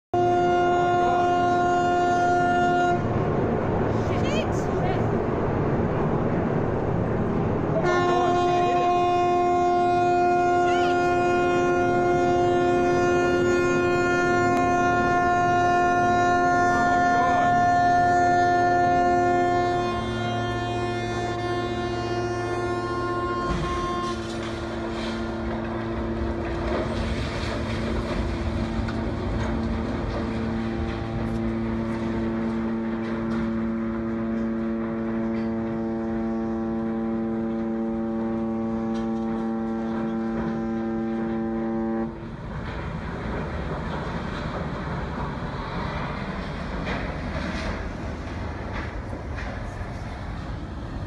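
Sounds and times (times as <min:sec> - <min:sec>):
ship's horn long blast: 0:00.1 - 0:04.8, 0:07.7 - 0:42.4.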